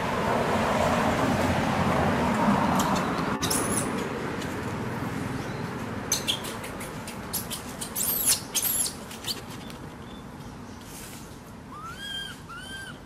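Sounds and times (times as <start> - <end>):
high-pitched animal squeaks: 7.3 - 9.4, 11.7 - 13.0.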